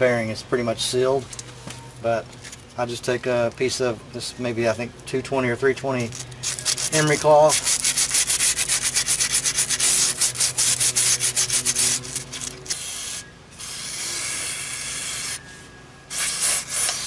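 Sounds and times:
aerosol can spraying: 0:06.4 - 0:15.4, 0:16.1 - 0:17.0
emery cloth rubbing on steel: 0:06.5 - 0:12.7.

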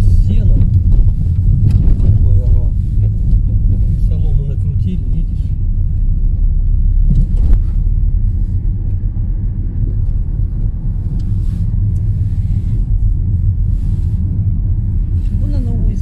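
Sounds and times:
car engine and tyres rumbling: 0:00.0 - 0:16.0.

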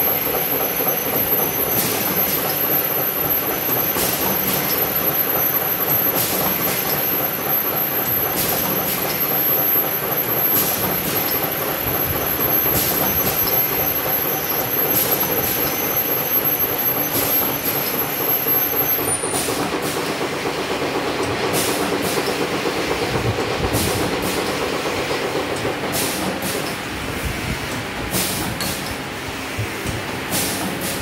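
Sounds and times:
pneumatic cutter clacks: 0:00.0 - 0:27.0, 0:27.7 - 0:31.0
machine clatter and hum: 0:00.0 - 0:31.0.

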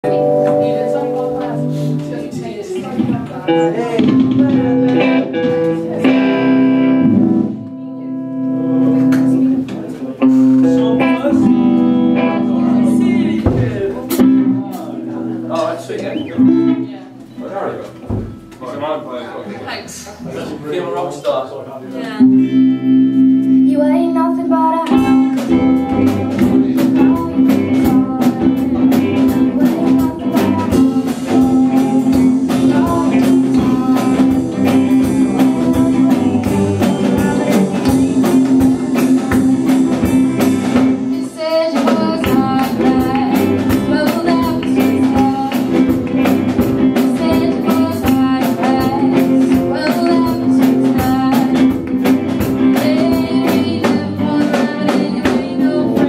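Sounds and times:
rock band playing: 0:00.0 - 0:18.6, 0:22.0 - 0:56.0
woman singing: 0:23.5 - 0:56.0.

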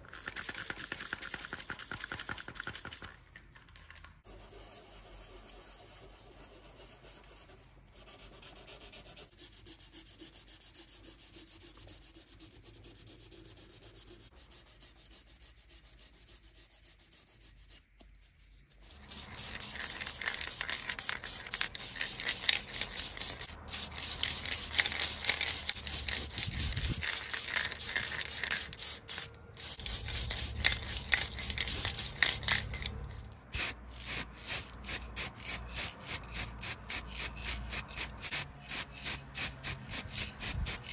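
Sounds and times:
sanding sponge rasping: 0:04.4 - 0:17.8.

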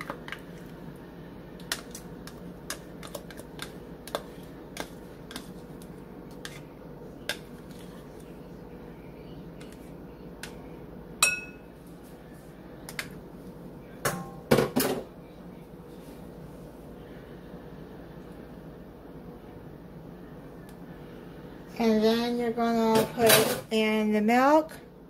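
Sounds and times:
steady low hum: 0:00.0 - 0:25.0
knife scraping a bowl: 0:06.3 - 0:06.7
ringing clink: 0:11.2 - 0:11.6.

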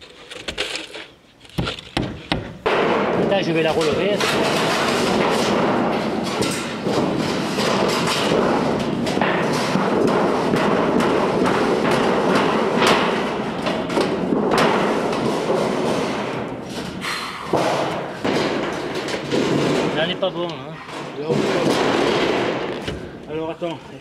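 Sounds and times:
metal roofing sheet rattling: 0:00.0 - 0:23.7
sharp knocks on metal: 0:01.6 - 0:16.8, 0:17.4 - 0:20.5.

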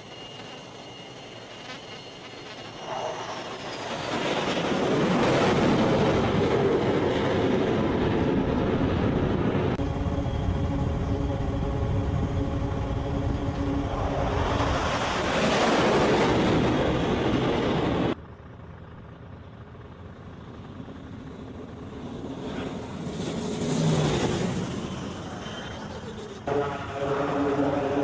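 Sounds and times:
jet passing close: 0:00.0 - 0:18.2
jet engines at full power: 0:00.0 - 0:28.0.

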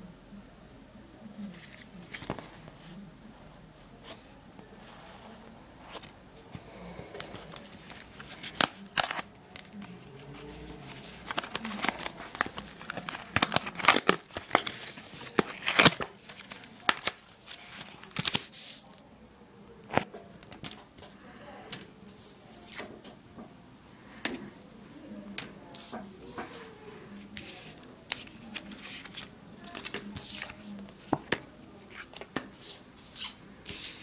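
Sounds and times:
packaging crinkling: 0:07.3 - 0:18.6
packaging sharp clicks: 0:11.2 - 0:17.2.

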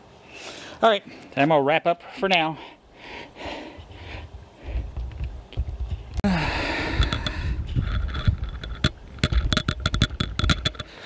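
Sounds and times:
breathy sigh: 0:06.2 - 0:07.6
sharp clicks and knocks: 0:06.9 - 0:11.0.

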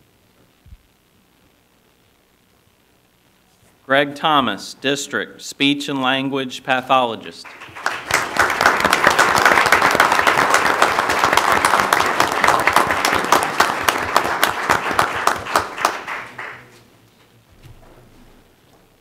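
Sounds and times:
people applauding: 0:07.4 - 0:16.8.

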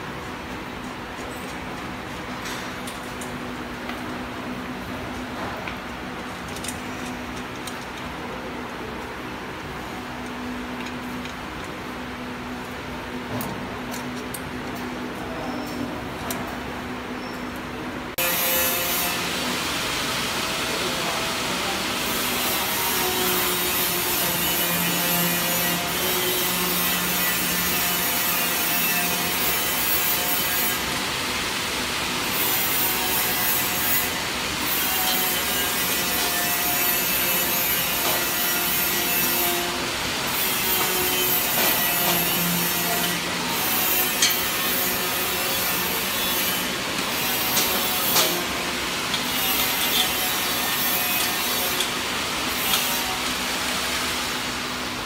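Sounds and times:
conveyor belt scraping metal frame: 0:20.7 - 0:54.1.

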